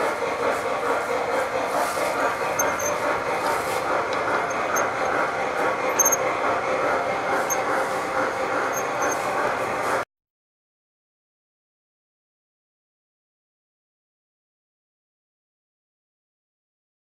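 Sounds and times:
model train cars rolling: 0.0 - 10.0
wheels squeaking: 1.1 - 10.0.

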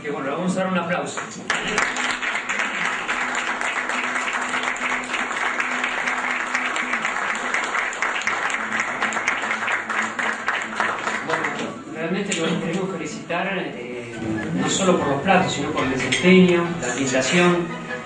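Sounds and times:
group applauding: 1.1 - 12.8, 16.5 - 17.5.

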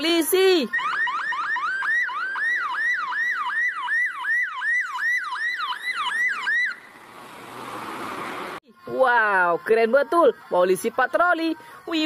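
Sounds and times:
electronic police siren yelping: 0.0 - 7.0.

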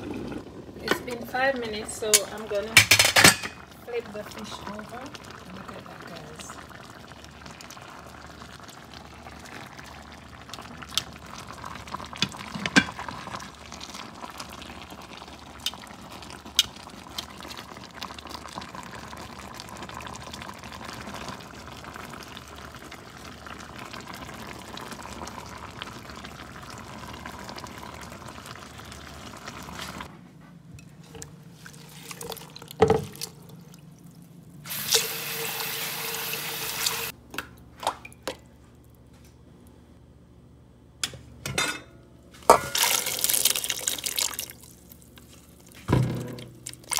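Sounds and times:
sauce bubbling in a pan: 3.6 - 30.1, 31.3 - 37.2, 42.7 - 46.9.

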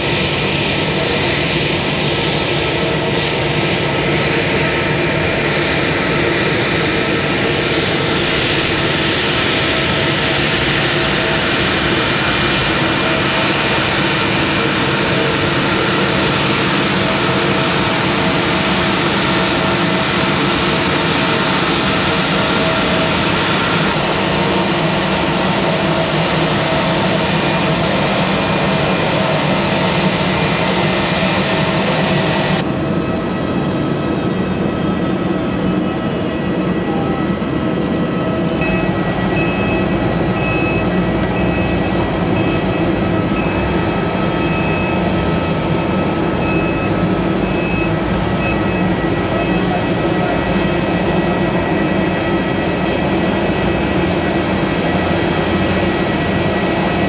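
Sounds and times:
airliner engine drone and whine: 0.0 - 57.0
high beep: 38.6 - 43.8, 44.4 - 45.1, 46.4 - 49.8.

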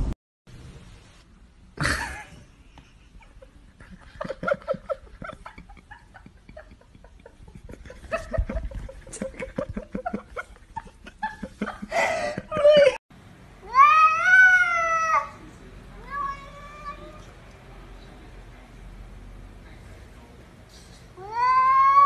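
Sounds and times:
cat yowling: 13.6 - 15.4, 16.0 - 17.2, 21.2 - 22.0.

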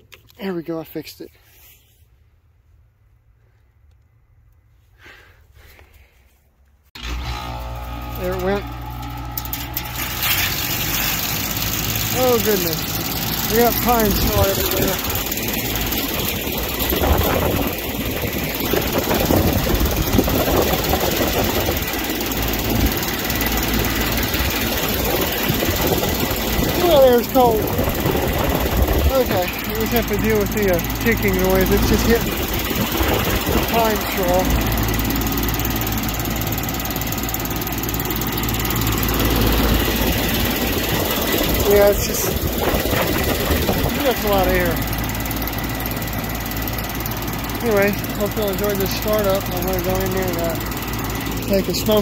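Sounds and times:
low hum: 7.0 - 44.0
heat pump fan running: 7.0 - 52.0.

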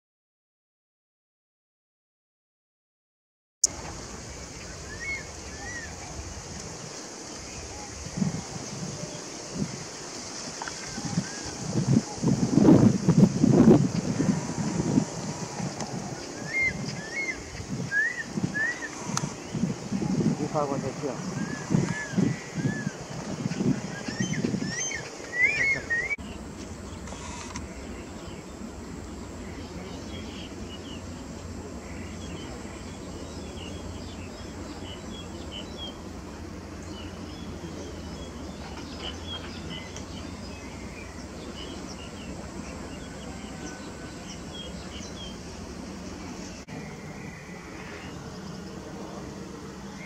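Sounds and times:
small birds chirping: 3.6 - 49.0
low background hum: 3.7 - 50.0
rising whistled bird calls: 4.6 - 6.0, 16.2 - 19.6, 23.9 - 26.4.

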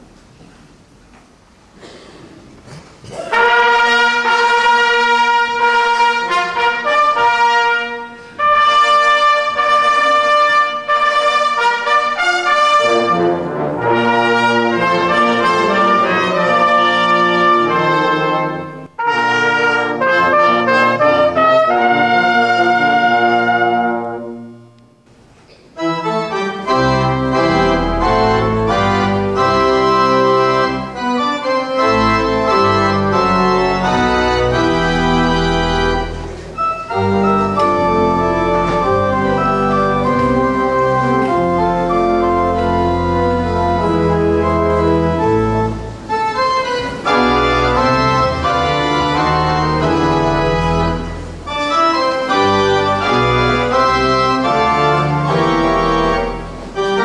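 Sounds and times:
instrumental church music: 2.8 - 57.0.

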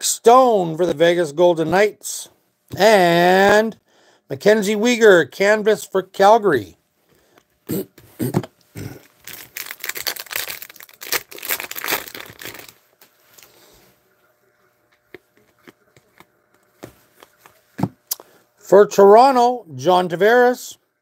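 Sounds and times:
foil wrapper crinkling: 9.0 - 13.6.

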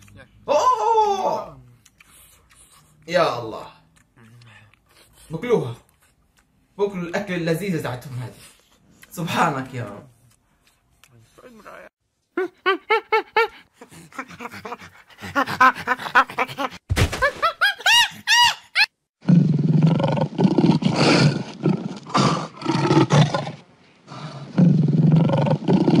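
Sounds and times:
chimpanzee screeching calls: 17.8 - 18.9
lion roaring: 19.2 - 26.0.

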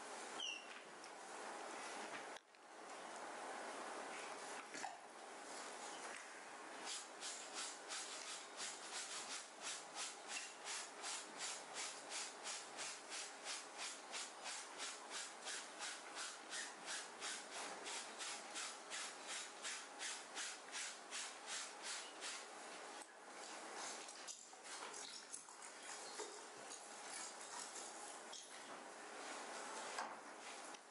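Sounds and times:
brush scrubbing fabric: 6.9 - 22.9.

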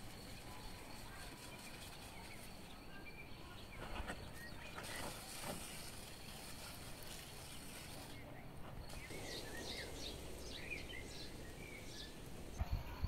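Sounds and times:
bird chirps: 7.0 - 13.0
pressure sprayer hissing: 8.9 - 12.6.

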